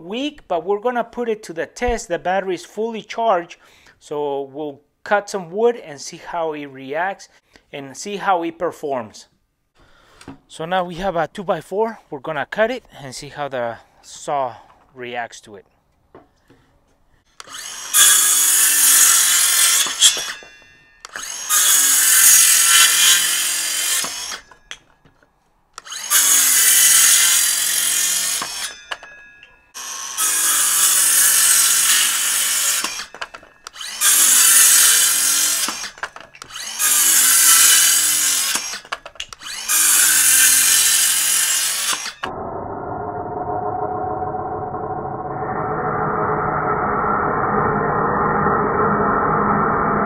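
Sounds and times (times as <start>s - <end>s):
circular saw cutting wood: 17.4s - 24.8s, 25.8s - 50.0s.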